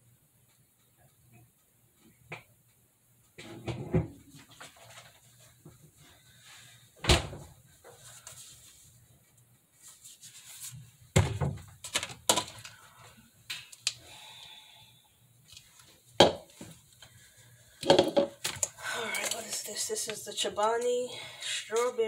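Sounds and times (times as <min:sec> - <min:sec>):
kitchen knocks and thuds: 0:11.2 - 0:11.7, 0:16.2 - 0:16.5, 0:17.8 - 0:18.4
items clattering: 0:11.2 - 0:12.8, 0:17.8 - 0:19.7.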